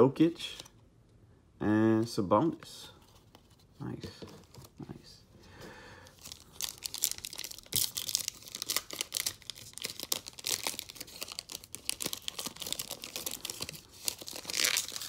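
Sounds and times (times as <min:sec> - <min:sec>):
foil wrapper tearing and crinkling: 0:06.2 - 0:15.0.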